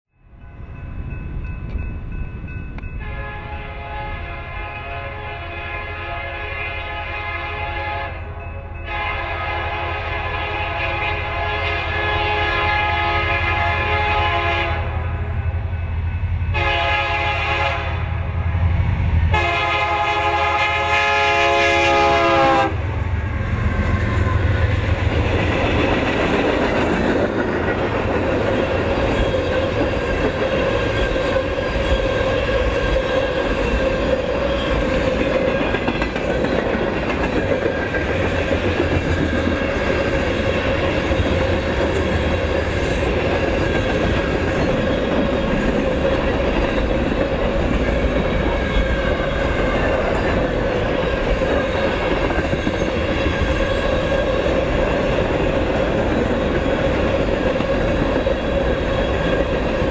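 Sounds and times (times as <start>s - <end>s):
train air horn blasts: 3.0s - 15.5s, 16.5s - 24.8s
train wheels clattering over rails: 23.5s - 59.9s.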